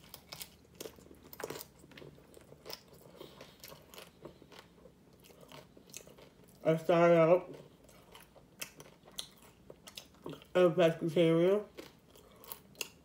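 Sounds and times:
crunchy taco chewing: 0.0s - 11.0s, 11.6s - 13.0s.

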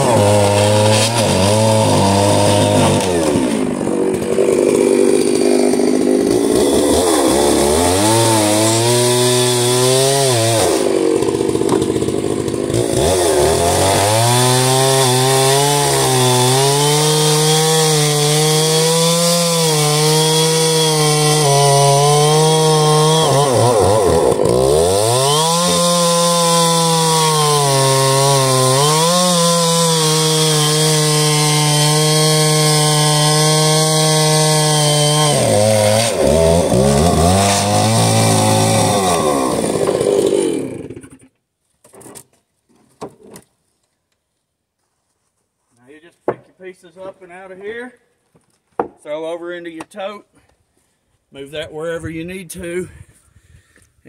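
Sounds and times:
chainsaw cutting wood: 0.0s - 42.4s.

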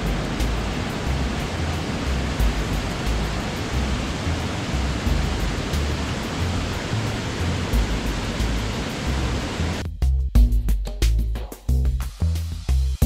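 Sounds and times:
waterfall rushing: 0.0s - 9.8s
low rumble: 0.0s - 9.9s.

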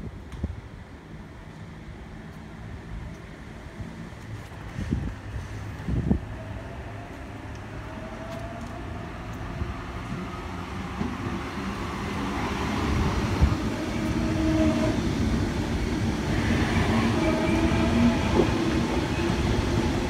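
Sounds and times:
train wheels rumbling on rails: 0.0s - 20.0s
electric train whine: 5.8s - 20.0s.

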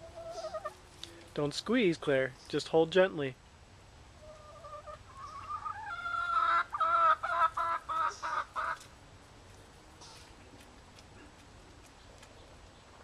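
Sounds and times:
hen calling and clucking: 0.0s - 1.8s, 4.1s - 9.0s.

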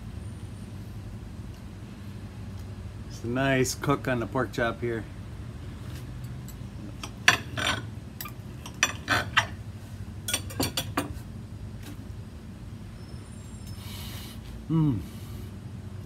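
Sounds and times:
knife and fork scraping a plate: 7.3s - 9.6s.

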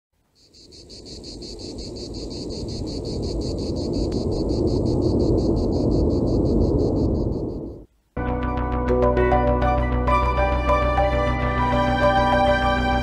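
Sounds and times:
insect chirping: 0.2s - 7.9s.

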